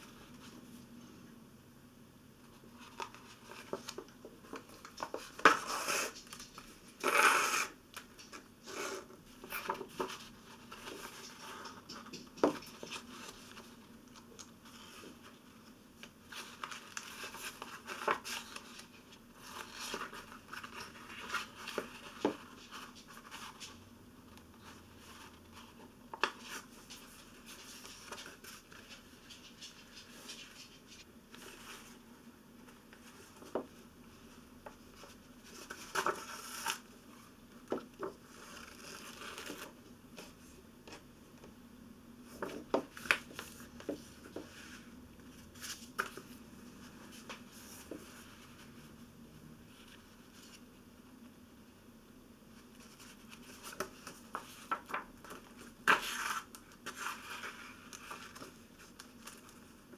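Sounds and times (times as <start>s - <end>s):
paper rustling: 2.6s - 23.8s, 24.6s - 32.0s, 34.9s - 36.9s, 52.7s - 59.8s.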